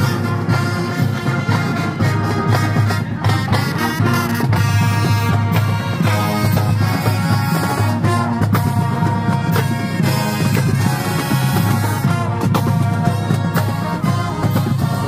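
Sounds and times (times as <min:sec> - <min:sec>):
marching band brass: 0:00.0 - 0:15.0
steady drum beat: 0:00.0 - 0:15.0.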